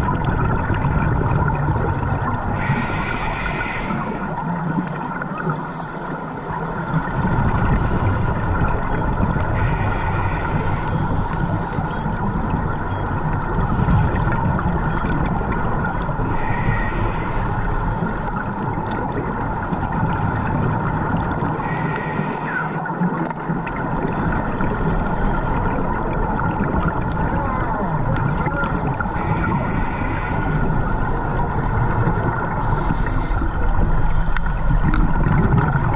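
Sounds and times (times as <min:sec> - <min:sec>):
underwater rumbling hiss: 0:00.0 - 0:05.5, 0:06.5 - 0:12.8, 0:16.0 - 0:27.2, 0:28.2 - 0:35.9
regulator exhaling bubbles: 0:23.3 - 0:35.9.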